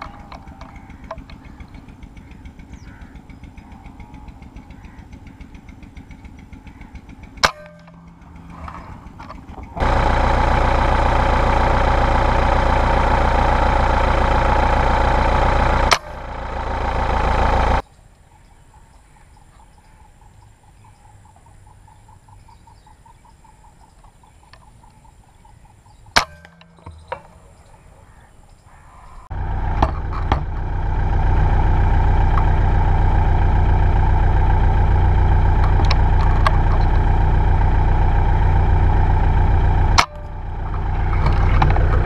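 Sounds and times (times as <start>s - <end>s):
vehicle engine drone: 0.0s - 42.0s
sharp crack: 7.3s - 17.8s.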